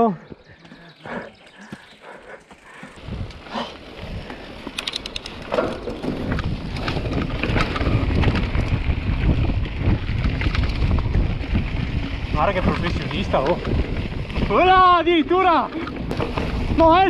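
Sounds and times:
mountain bike rumbling and rattling: 0.0s - 17.0s
wind buffeting microphone: 0.2s - 17.0s
sharp clicks: 4.7s - 5.4s.

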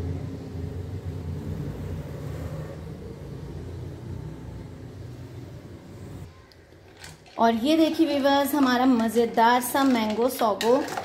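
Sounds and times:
low steady rumble: 0.0s - 6.3s
faint hum: 0.0s - 6.8s.

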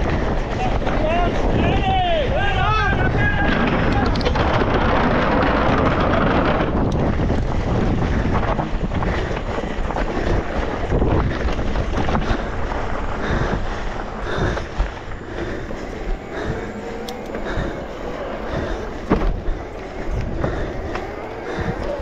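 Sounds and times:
bike knocks and rattles: 0.0s - 16.2s, 18.4s - 22.0s
tyre and trail noise: 0.0s - 22.0s
wind rushing over microphone: 0.0s - 22.0s.

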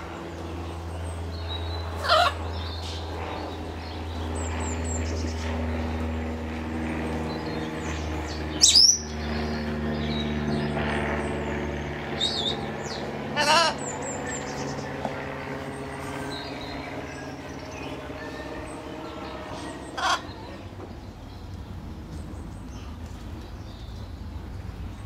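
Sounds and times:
steady low hum: 0.0s - 25.0s
macaw squawking: 2.0s - 2.4s, 13.4s - 13.8s, 20.0s - 20.3s
faint high bird chirps: 8.6s - 9.2s.

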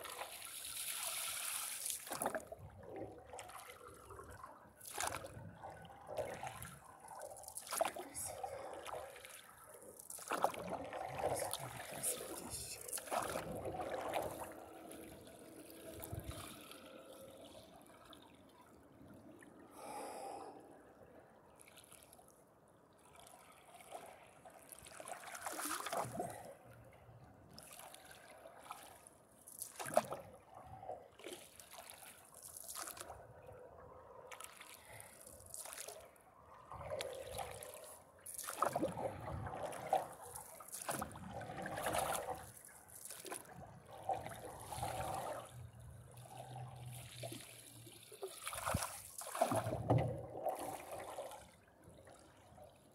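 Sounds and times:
paddle splashing in water: 0.0s - 16.9s, 23.8s - 26.4s, 34.3s - 36.0s, 36.7s - 52.3s
water trickling and dripping: 3.2s - 19.8s.

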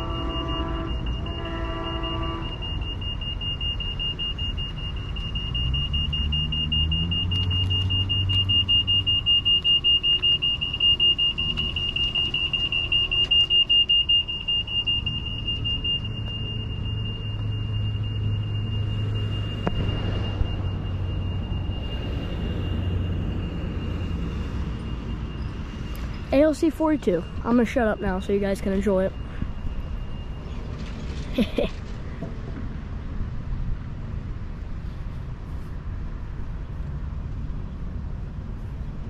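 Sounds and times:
high-pitched pulsing tone: 0.0s - 30.5s.

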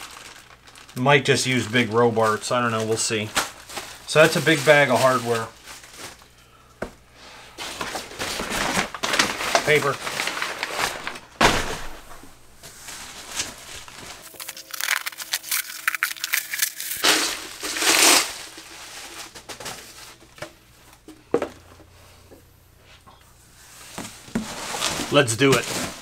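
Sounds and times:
packing paper crumpling: 0.0s - 6.3s, 7.6s - 11.4s, 12.7s - 20.4s.

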